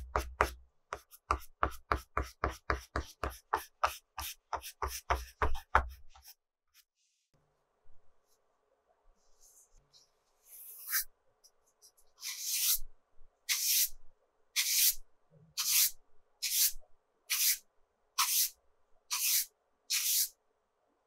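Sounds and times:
brush sweeping paper: 9.2 - 11.1, 15.6 - 17.6, 18.2 - 18.5, 19.1 - 20.3.

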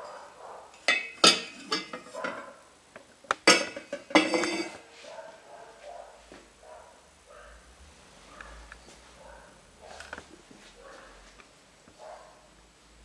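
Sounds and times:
scraping and handling: 0.8 - 2.6, 3.4 - 5.2
bowl knocking against metal pot: 3.4 - 4.8.

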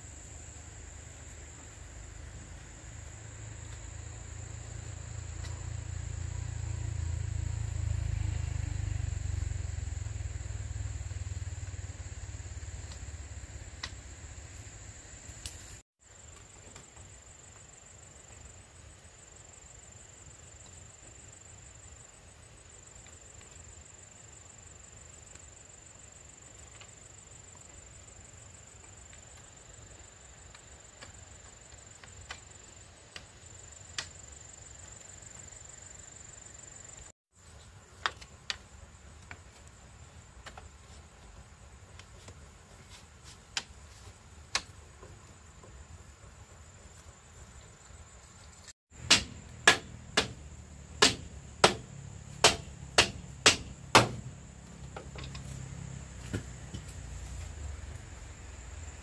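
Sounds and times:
crickets trilling: 0.0 - 59.0
hammer strikes: 49.0 - 54.3
sharp knocks: 49.0 - 54.3.

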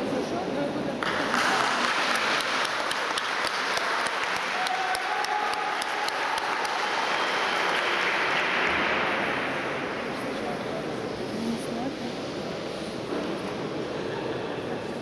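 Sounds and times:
spectators applauding: 1.0 - 9.4.

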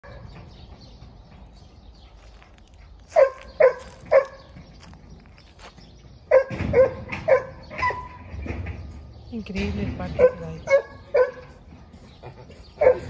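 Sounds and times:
dog barking: 3.1 - 4.5, 6.3 - 8.1, 10.2 - 11.5, 12.8 - 13.0.

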